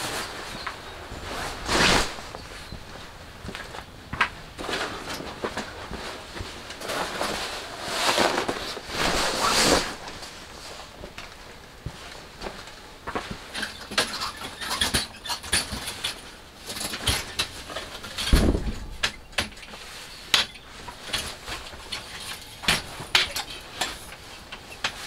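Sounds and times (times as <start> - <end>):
metal frame clicks and clanks: 13.6 - 25.0.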